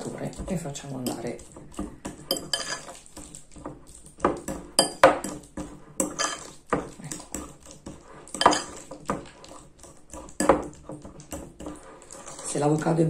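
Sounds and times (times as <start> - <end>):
fork clinking and scraping glass: 1.0 - 12.5.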